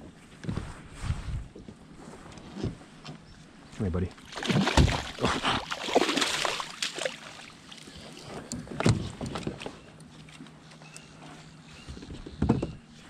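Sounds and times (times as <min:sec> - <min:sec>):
fish thrashing and splashing: 0:04.2 - 0:08.0.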